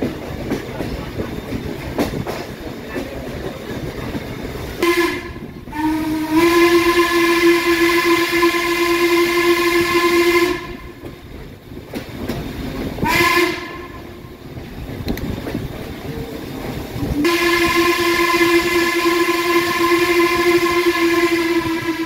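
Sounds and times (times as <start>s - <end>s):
train rumble and clatter: 0.0s - 22.0s
steam whistle blasts: 4.8s - 10.9s, 13.0s - 14.0s, 17.2s - 22.0s.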